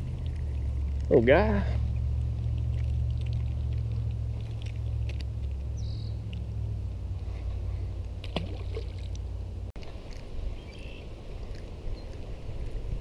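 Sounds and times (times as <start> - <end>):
wind on microphone: 9.8 - 13.0.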